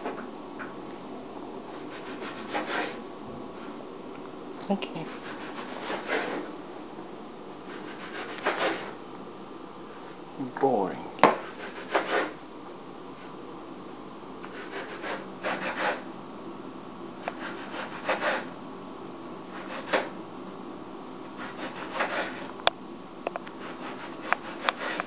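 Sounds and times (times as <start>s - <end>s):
steady low hum: 0.0s - 25.0s
rubbing and scraping: 1.7s - 3.0s, 5.0s - 6.5s, 7.7s - 9.0s, 11.3s - 12.4s, 14.4s - 16.0s, 17.3s - 18.5s, 21.4s - 22.5s, 23.6s - 25.0s.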